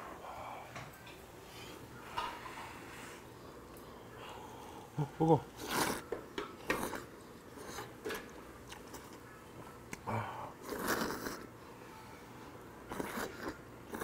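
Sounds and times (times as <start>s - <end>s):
person slurping noodles: 5.6s - 6.0s, 10.6s - 11.5s, 12.9s - 14.0s.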